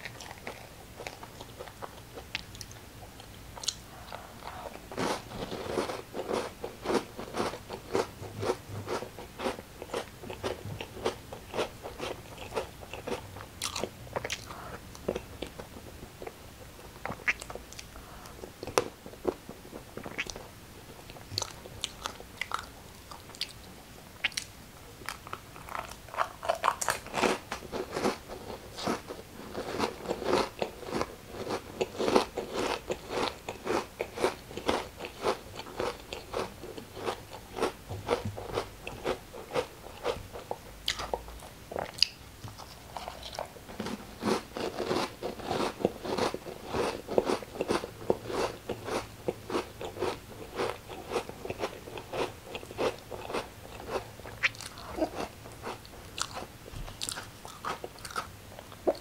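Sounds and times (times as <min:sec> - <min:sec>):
person chewing crunchy food: 0:00.0 - 0:20.4, 0:21.1 - 0:23.6, 0:24.2 - 0:59.0.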